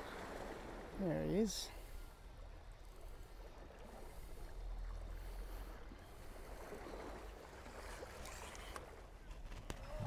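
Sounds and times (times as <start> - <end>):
water lapping against rocks: 2.9 - 10.0.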